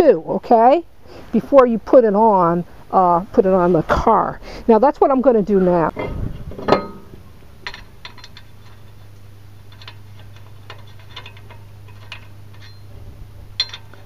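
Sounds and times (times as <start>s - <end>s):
steady low hum: 0.0s - 14.0s
metallic clicks of brake rotor: 6.6s - 12.9s, 13.6s - 14.0s.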